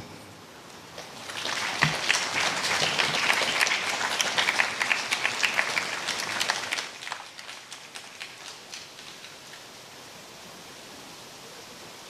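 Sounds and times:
audience applauding: 0.9s - 9.6s.

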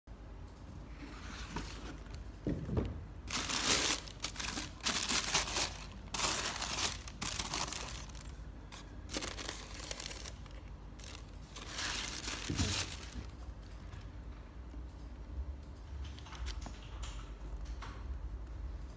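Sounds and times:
tissue paper rustling: 3.3s - 8.4s, 9.0s - 13.3s.

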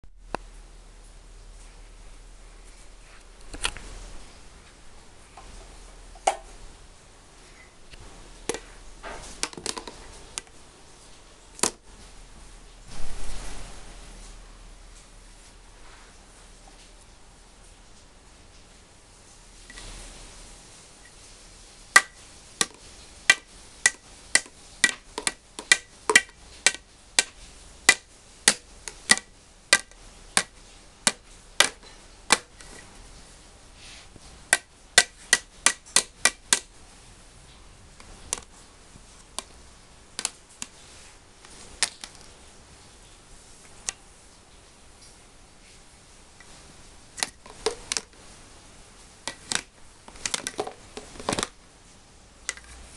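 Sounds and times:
stick rapping on plastic blocks: 21.9s - 32.8s, 34.4s - 36.7s, 39.3s - 40.8s, 49.2s - 51.5s.

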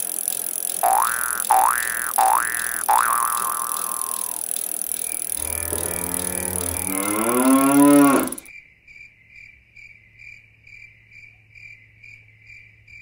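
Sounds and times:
crickets chirping: 0.8s - 13.0s
cow mooing: 5.4s - 8.5s.

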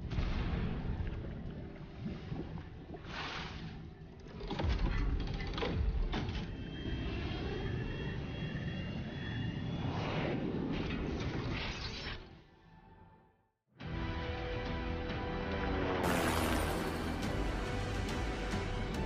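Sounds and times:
high whine: 15.7s - 19.0s.

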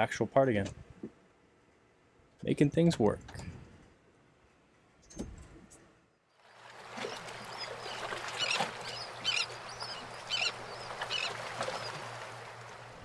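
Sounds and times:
wind: 0.0s - 13.0s
water washing: 6.5s - 13.0s
birds calling: 6.8s - 12.8s.

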